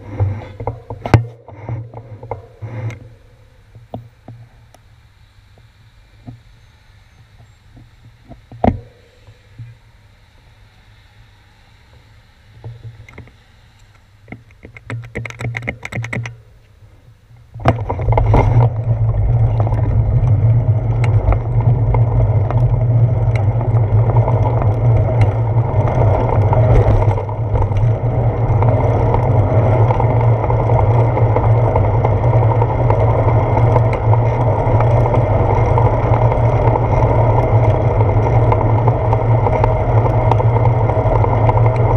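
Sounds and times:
tyre and road rumble: 0.0 - 10.6, 11.8 - 41.9
wind buffeting microphone: 17.5 - 41.9.

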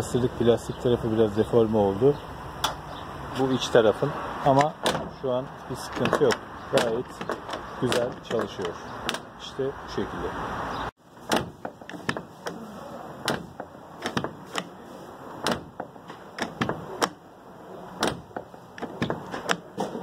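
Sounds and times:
door lock clicks and clunks: 4.5 - 5.2, 5.9 - 9.4, 11.2 - 12.6, 13.2 - 14.8, 15.4 - 17.2, 17.9 - 20.0.

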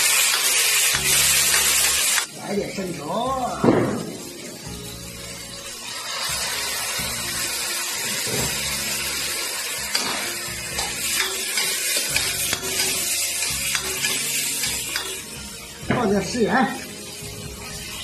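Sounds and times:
metal spatula scraping wok: 0.0 - 2.3, 7.9 - 15.8
wok sizzling: 0.0 - 18.0.

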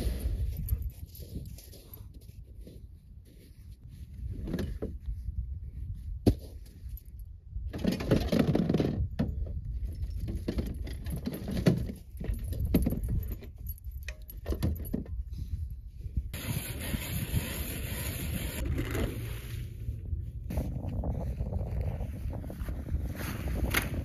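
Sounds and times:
wind rumble on microphone: 0.0 - 24.0
rustling and clattering: 6.2 - 15.5
metal tools rattling and clinking: 7.8 - 15.2.

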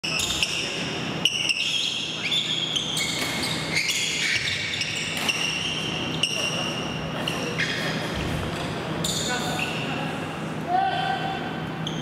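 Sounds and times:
shoes squeaking on gym floor: 0.1 - 9.9.

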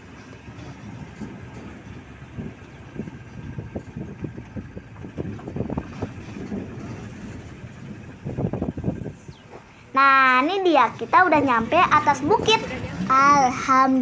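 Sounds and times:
vehicle body rattling and knocking: 0.0 - 9.7
jeep engine running: 0.0 - 14.0.

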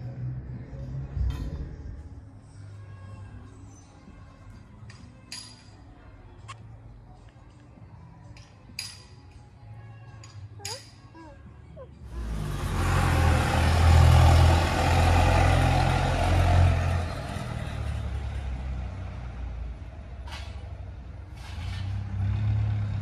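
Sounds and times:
truck engine running: 12.1 - 20.6.

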